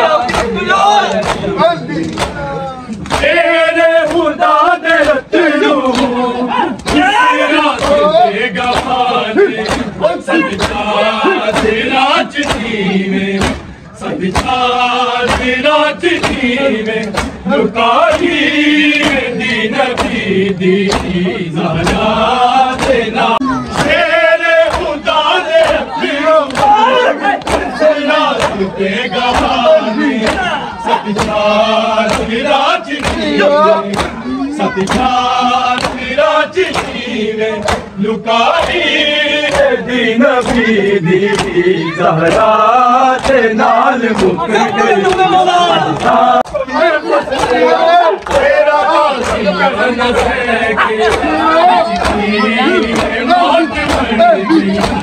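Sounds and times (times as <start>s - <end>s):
crowd of men chanting: 0.0s - 55.0s
hands slapping chests: 0.3s - 3.4s, 4.0s - 4.4s, 5.0s - 5.2s, 5.8s - 6.2s, 7.7s - 9.0s, 9.6s - 11.8s, 12.4s - 12.7s, 13.4s - 13.7s, 14.3s - 14.6s, 15.2s - 15.5s, 16.2s - 17.4s, 18.1s - 18.4s, 19.0s - 19.3s, 19.9s - 20.2s, 20.8s - 21.2s, 21.8s - 22.1s, 22.8s - 23.0s, 24.6s - 25.0s, 25.6s - 28.6s, 31.2s - 32.3s, 33.0s - 33.3s, 33.9s - 34.2s, 34.8s - 36.1s, 36.7s - 37.0s, 37.6s - 37.9s, 38.5s - 39.8s, 40.4s - 41.6s, 42.3s - 43.5s, 44.1s - 46.2s, 48.2s - 49.5s, 51.0s - 55.0s.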